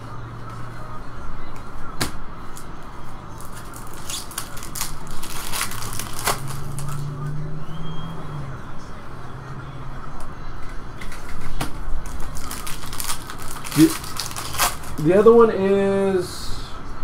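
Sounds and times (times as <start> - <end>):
foil pack tearing and crinkling: 3.4 - 7.0, 12.0 - 15.0.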